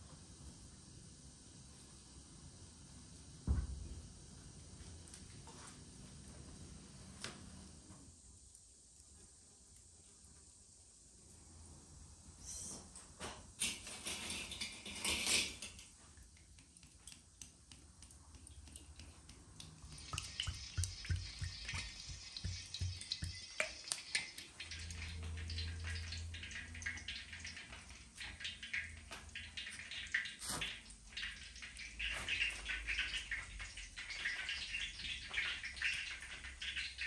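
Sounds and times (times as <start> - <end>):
kitchen knocks and clinks: 13.6 - 16.0
oil pouring into a wok: 18.3 - 37.0.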